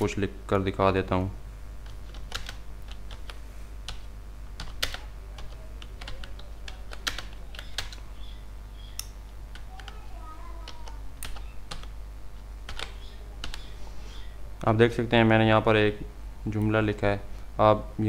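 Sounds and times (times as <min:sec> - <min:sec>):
steady low hum: 0:00.0 - 0:18.0
keyboard typing: 0:01.8 - 0:08.1, 0:09.0 - 0:12.0, 0:12.6 - 0:14.3.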